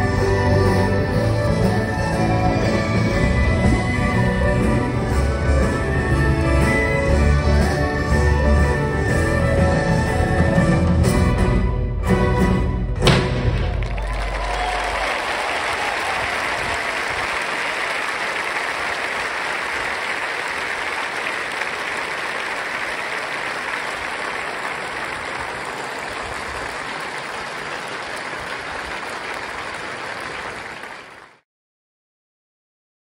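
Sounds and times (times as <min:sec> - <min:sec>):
large audience applauding: 0:13.4 - 0:31.4.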